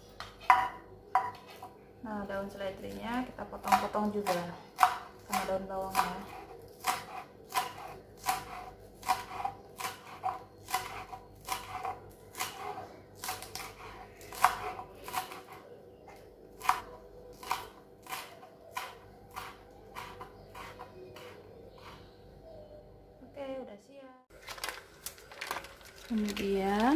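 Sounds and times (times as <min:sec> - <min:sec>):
knife chopping on wooden board: 0:03.6 - 0:15.6, 0:16.6 - 0:21.9.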